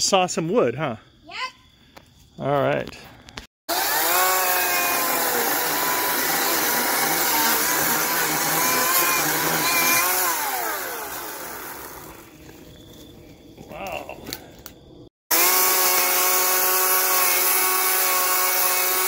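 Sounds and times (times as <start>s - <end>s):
chainsaw cutting: 3.7s - 12.6s, 15.3s - 19.0s.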